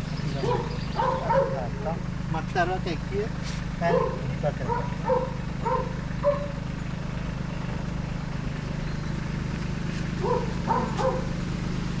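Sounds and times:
tractor diesel engine idling: 0.0s - 12.0s
dog barking: 0.4s - 1.8s, 3.9s - 6.6s, 10.2s - 11.3s.

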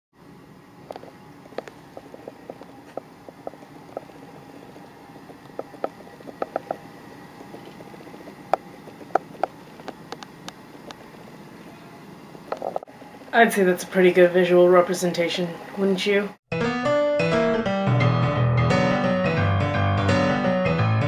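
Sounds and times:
faint steady hum: 0.2s - 16.4s.

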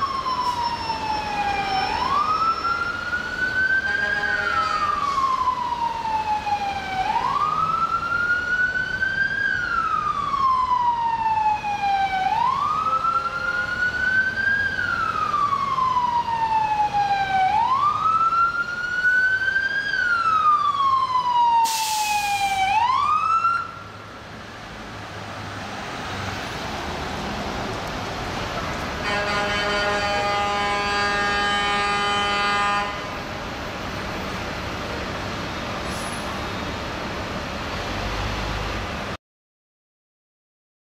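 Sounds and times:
siren wailing: 0.0s - 23.9s
city traffic noise: 0.0s - 39.2s
short hiss: 21.7s - 22.6s.

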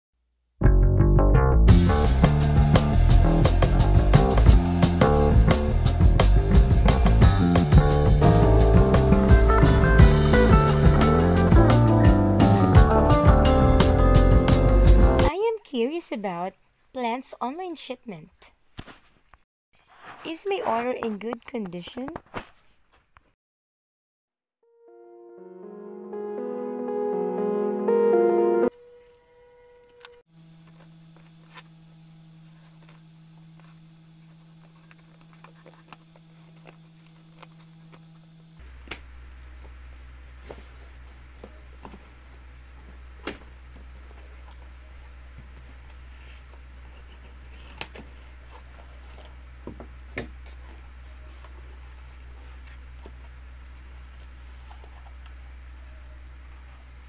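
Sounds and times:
faint steady hum: 28.7s - 57.0s.

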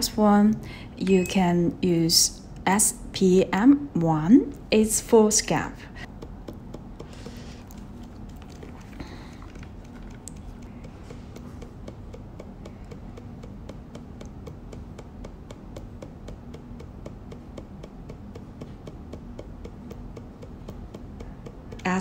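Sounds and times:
low motor hum: 3.3s - 22.0s
needle clicking on paper: 9.8s - 22.0s.

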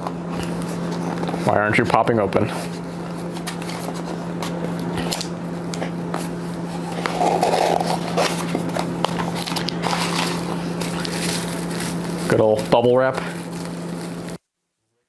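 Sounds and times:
steady low hum: 0.0s - 14.4s
cardboard box scraping and clicking: 6.9s - 10.5s.

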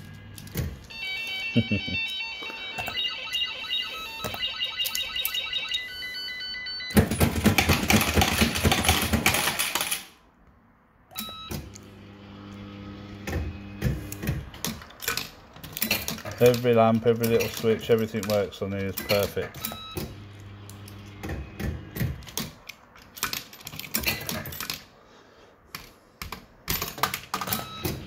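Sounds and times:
electronic bleeping tune: 0.9s - 7.0s
clicks: 4.2s - 5.5s
tokens clattering out: 6.9s - 10.2s.

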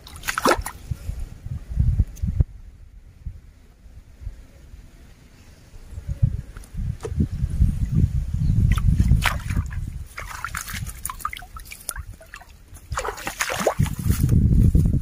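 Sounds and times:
shallow water splashing: 0.0s - 0.8s, 8.7s - 14.2s
wind rumble on microphone: 0.0s - 15.0s
microphone handling noise: 6.2s - 10.0s, 13.8s - 15.0s
grass rustling: 8.8s - 15.0s.

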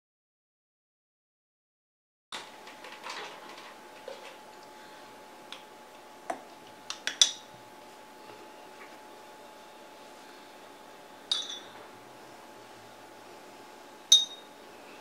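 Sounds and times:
faint steady hum: 2.4s - 15.0s
painting tools tapping and clinking: 11.3s - 11.8s.

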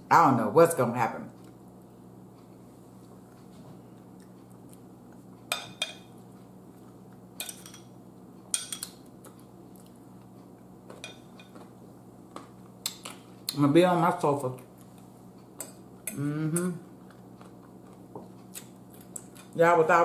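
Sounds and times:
metal fork clinking on ceramic bowls: 7.4s - 7.9s.

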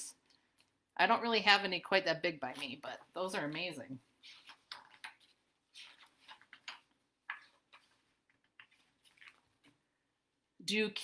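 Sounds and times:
book pages rustling: 2.4s - 9.9s.

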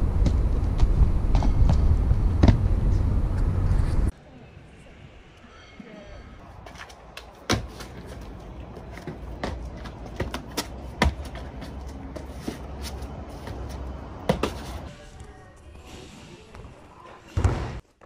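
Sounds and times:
steady low rumble: 0.0s - 5.4s
shoes and hands slapping stone: 6.8s - 13.0s.

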